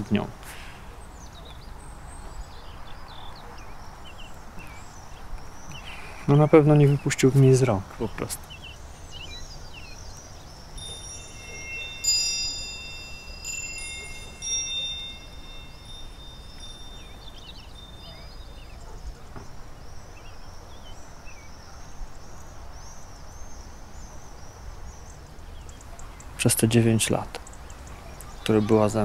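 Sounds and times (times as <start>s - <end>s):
birds chirping faintly: 0.0s - 29.0s
wind chime ringing: 10.6s - 18.8s.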